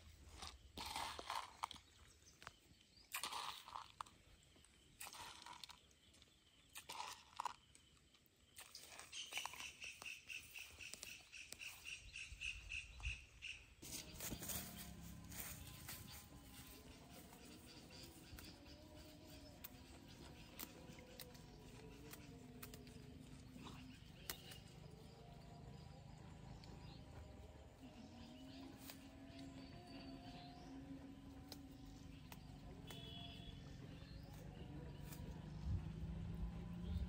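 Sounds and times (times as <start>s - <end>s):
bird chirping: 8.5s - 37.0s.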